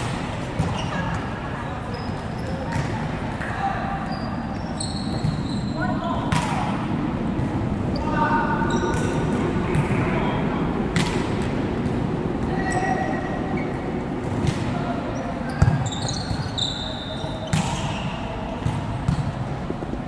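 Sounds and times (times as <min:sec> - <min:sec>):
players' voices: 0:00.2 - 0:19.7
volleyballs being hit: 0:10.9 - 0:12.1.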